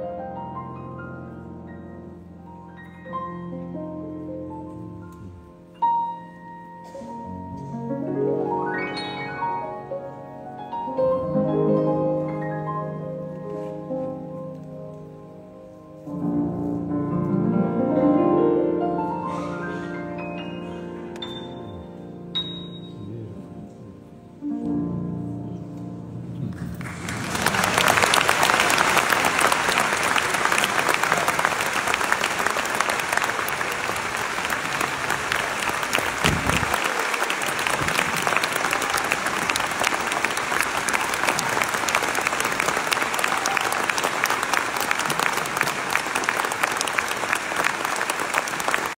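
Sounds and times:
grand piano duet: 0.0 - 49.0
audience applauding: 26.5 - 49.0.

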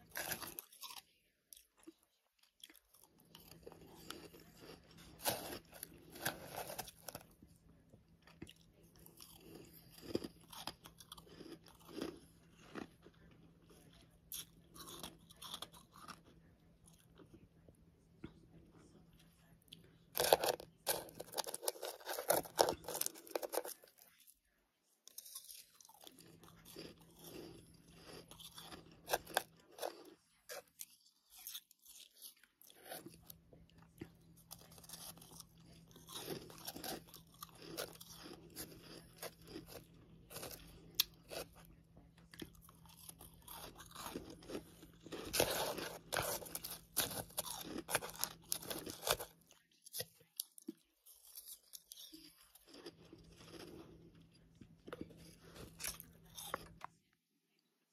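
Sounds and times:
crunching and chewing ice: 0.0 - 57.1
faint low hum: 0.0 - 57.9.

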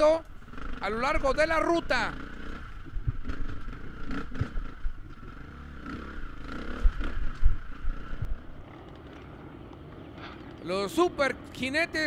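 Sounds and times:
dirt bike engine revving: 0.0 - 8.8.

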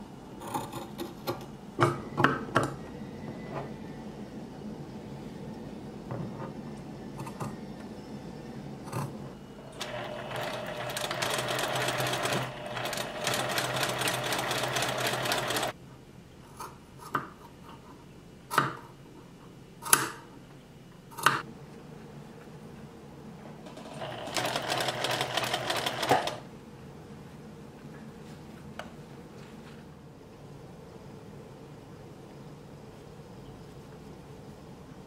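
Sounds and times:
sewing machine stitching: 9.8 - 15.7, 23.7 - 26.4.

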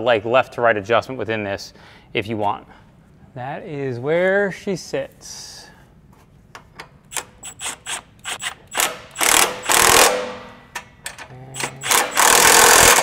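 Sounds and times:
hand ratchet clicking: 7.1 - 13.0.

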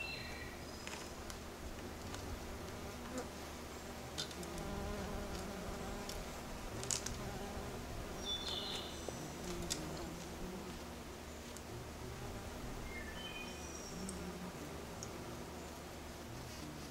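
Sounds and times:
bumblebee buzzing in flight: 1.1 - 16.9
high chirp: 12.9 - 14.0.

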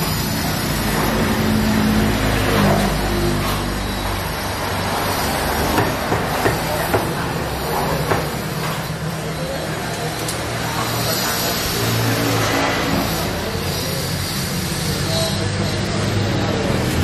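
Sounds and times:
road traffic rumble: 0.0 - 17.0
sharp knocks and clatters: 5.7 - 7.2.

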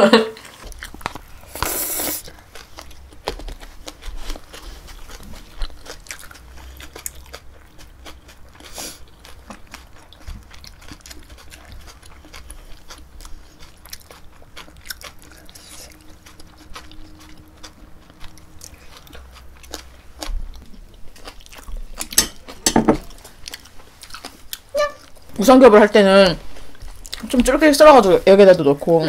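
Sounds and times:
wet crunchy chewing: 0.4 - 25.4, 26.5 - 27.5.

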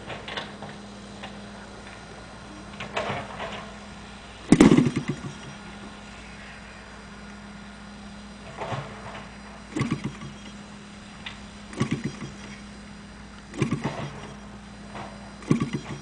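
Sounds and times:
model aircraft engine popping: 4.4 - 6.5, 8.5 - 16.0.

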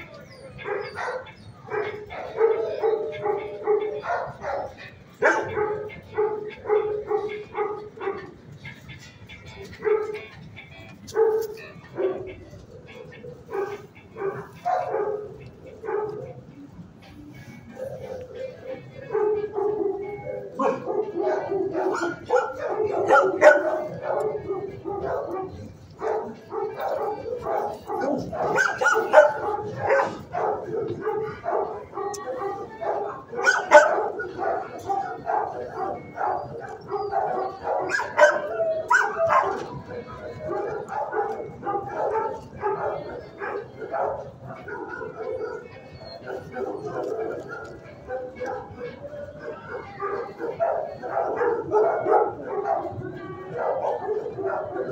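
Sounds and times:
dog barking: 0.0 - 8.4, 9.7 - 10.3, 11.1 - 16.4, 17.7 - 54.9.

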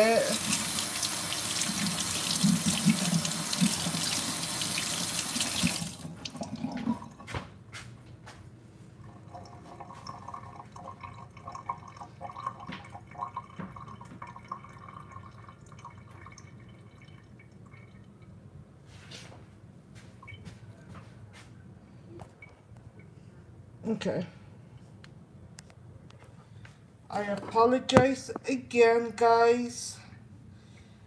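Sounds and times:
faucet running into sink: 0.0 - 7.1
faint knocks and clatter: 12.6 - 14.4.

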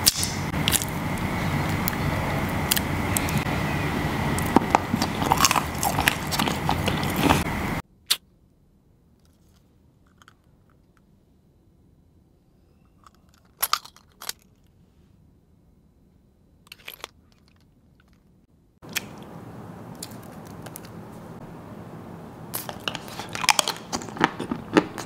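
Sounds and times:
chocolate crunching: 4.4 - 7.6, 22.5 - 25.0.

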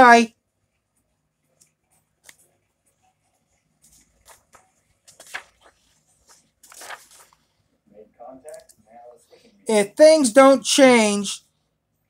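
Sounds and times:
paper pages rustling: 3.5 - 7.6.

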